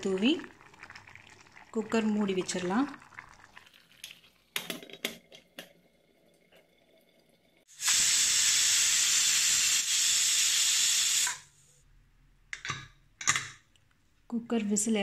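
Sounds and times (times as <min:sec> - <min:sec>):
pressure cooker steam hiss: 0:07.7 - 0:11.6.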